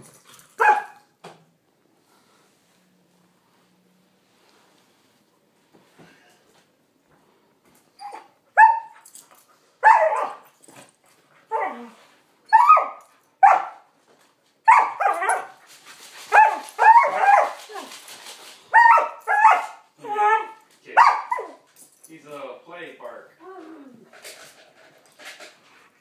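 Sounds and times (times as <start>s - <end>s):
dogs play-barking: 0.0s - 1.1s, 8.0s - 13.9s, 14.7s - 18.1s, 18.7s - 21.9s.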